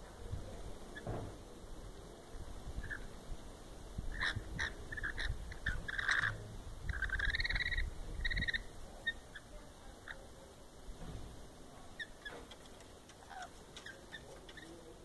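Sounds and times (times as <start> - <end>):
lorikeets chirping: 2.8 - 3.2, 4.1 - 10.4, 11.9 - 15.0
lorikeet squawk: 4.1 - 10.2, 13.2 - 14.8
buzzy trilled bird call: 4.2 - 9.4.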